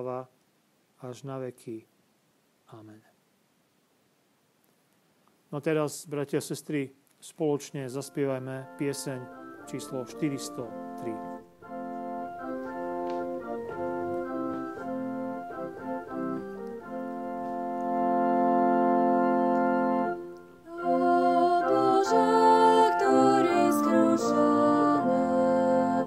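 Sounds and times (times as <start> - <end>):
organ playing hymn chords: 7.8 - 26.0.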